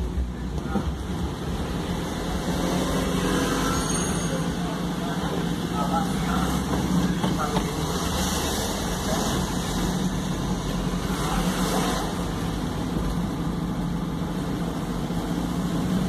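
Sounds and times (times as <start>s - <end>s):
road and tyre noise: 0.0s - 16.0s.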